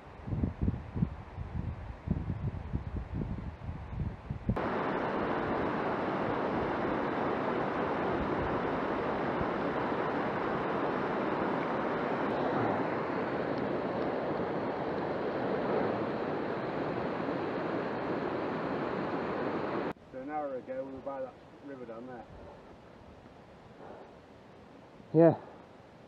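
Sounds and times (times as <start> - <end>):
stream rushing over rocks: 4.6 - 20.0.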